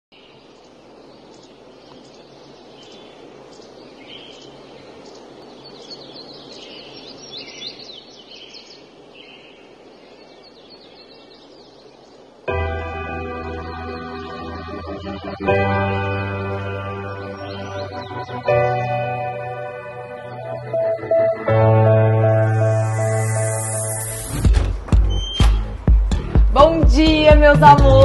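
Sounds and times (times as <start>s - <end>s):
small birds chirping: 0.1s - 21.4s, 22.6s - 26.3s
steady background hiss: 0.2s - 24.4s
music: 12.5s - 28.0s.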